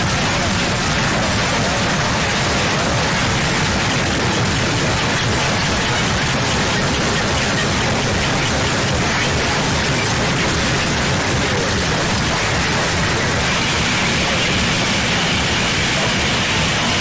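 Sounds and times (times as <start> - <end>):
static-like white noise hiss: 0.0 - 17.0.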